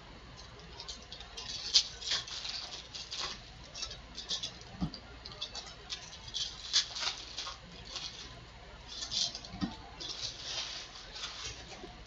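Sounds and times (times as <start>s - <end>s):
foil wrapper crinkling: 0.4s - 12.0s.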